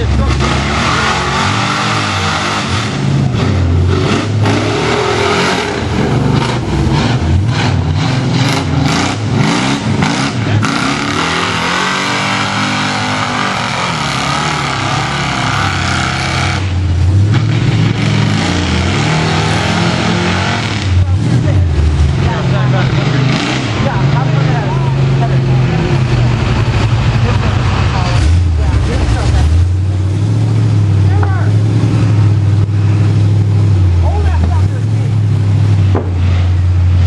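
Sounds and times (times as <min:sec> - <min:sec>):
truck churning through mud: 0:00.0 - 0:37.0
truck engine revving: 0:00.0 - 0:37.0.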